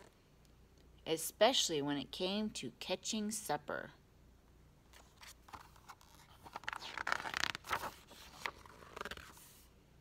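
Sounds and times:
book pages turning: 4.9s - 9.7s.

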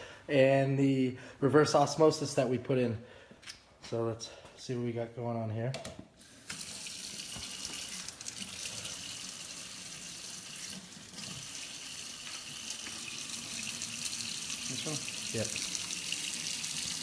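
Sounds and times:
tap water splashing into sink: 6.5s - 8.7s, 10.5s - 17.0s.

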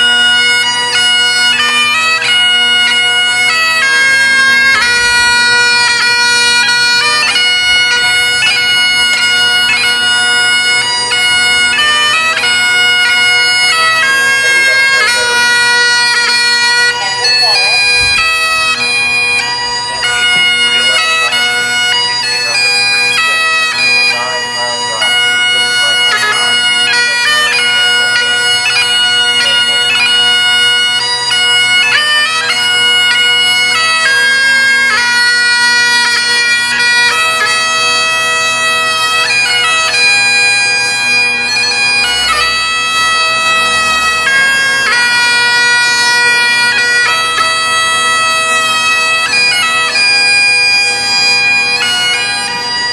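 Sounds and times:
bagpipe melody: 0.0s - 52.9s.

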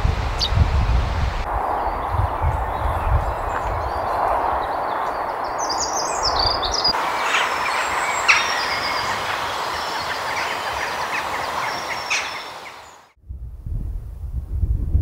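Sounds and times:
steady rushing noise: 0.0s - 13.2s
birds chirping: 0.3s - 13.2s.

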